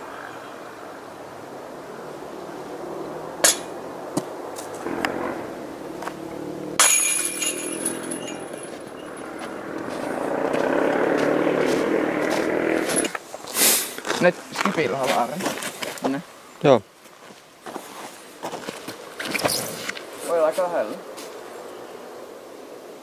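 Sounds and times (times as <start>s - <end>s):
disc hitting metal chains: 6.8s - 9.2s.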